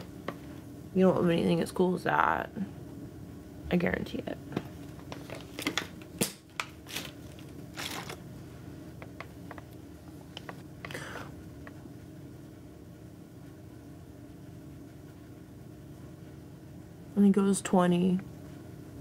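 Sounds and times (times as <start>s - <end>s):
plastic bottle crinkling: 5.1s - 8.2s.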